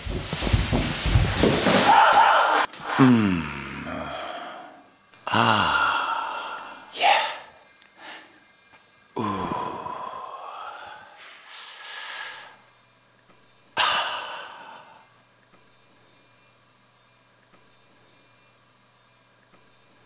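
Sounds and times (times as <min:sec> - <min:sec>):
man sighing and moaning: 0:01.9 - 0:07.5, 0:09.2 - 0:11.2, 0:13.8 - 0:15.0
sharp breath drawn in: 0:10.8 - 0:12.6.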